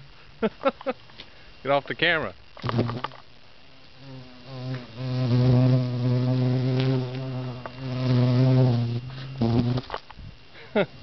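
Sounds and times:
bee buzzing: 0:02.4 - 0:10.5.

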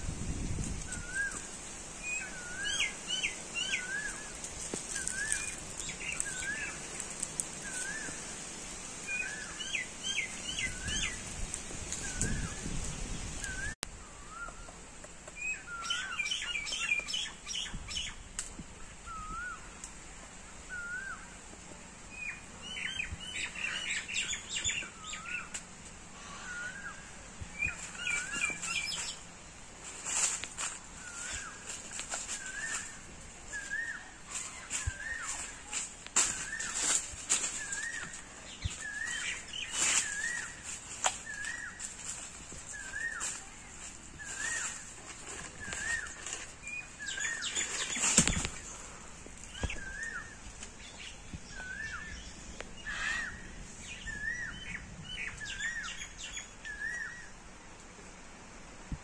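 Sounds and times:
bird whistling up and down: 0:19.0 - 0:19.7, 0:20.7 - 0:21.2.

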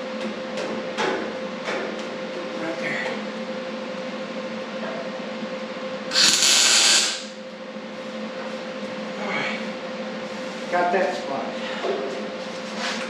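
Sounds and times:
steady low hum: 0:00.0 - 0:13.0
welding hiss: 0:06.1 - 0:07.4.

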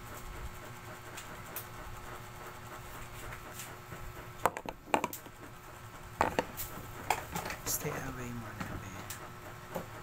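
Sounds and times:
sharp clicks and knocks: 0:06.2 - 0:10.0.

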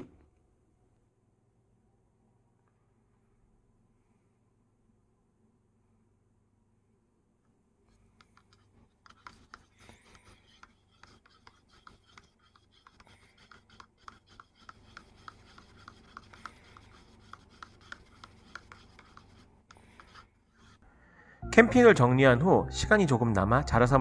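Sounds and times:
plastic stick scraping paper cup: 0:07.9 - 0:20.8.

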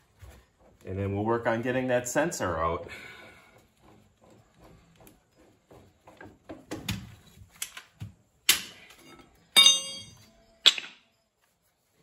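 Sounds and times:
ringing metal clank: 0:09.1 - 0:10.3.

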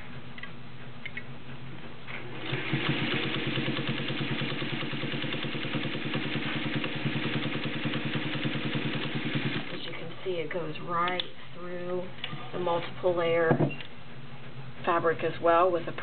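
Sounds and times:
sewing machine stitching: 0:02.2 - 0:10.0.

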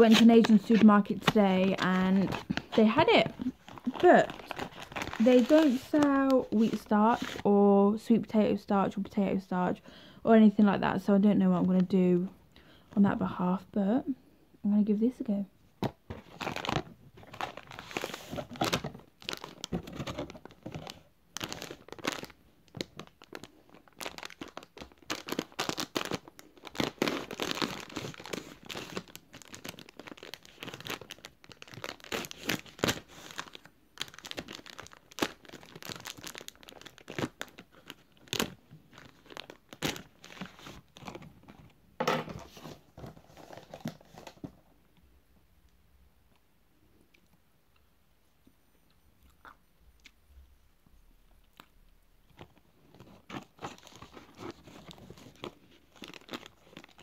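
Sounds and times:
paper bag crinkling and tearing: 0:00.0 - 0:07.5, 0:16.2 - 0:41.6, 0:42.5 - 0:44.4, 0:53.0 - 0:57.0.

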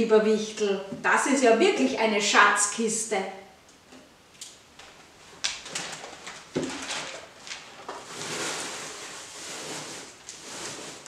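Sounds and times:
packing material rustling: 0:05.5 - 0:11.0.

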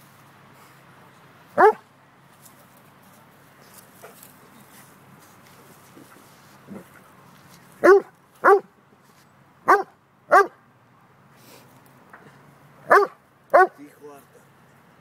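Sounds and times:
dog barking: 0:01.6 - 0:01.8, 0:07.8 - 0:08.7, 0:09.7 - 0:10.6, 0:12.9 - 0:13.8.

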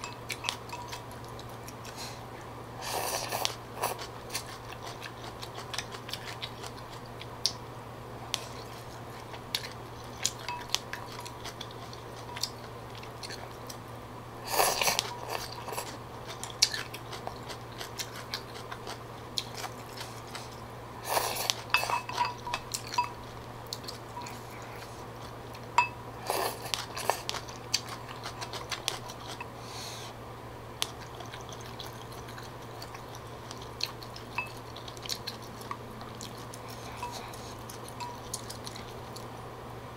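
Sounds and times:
chewing: 0:00.0 - 0:07.6, 0:08.3 - 0:29.6, 0:30.8 - 0:39.4
slurping noodles: 0:14.4 - 0:15.9, 0:19.9 - 0:21.7
chopsticks scraping ceramic bowl: 0:21.1 - 0:23.3.

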